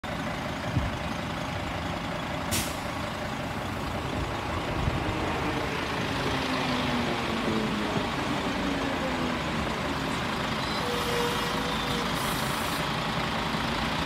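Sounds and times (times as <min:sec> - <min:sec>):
diesel railcar engine idling: 0:00.0 - 0:14.0
compressed air hiss: 0:02.5 - 0:02.9, 0:12.1 - 0:12.9.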